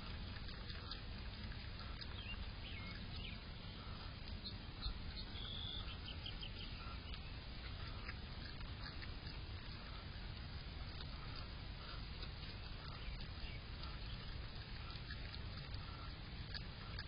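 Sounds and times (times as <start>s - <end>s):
faint bird chirps: 1.8s - 8.2s, 11.0s - 16.2s.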